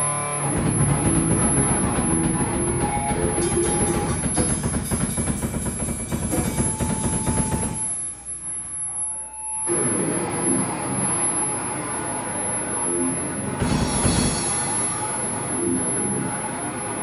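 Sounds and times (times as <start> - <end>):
live rock band playing: 0.0 - 5.2, 13.6 - 15.8.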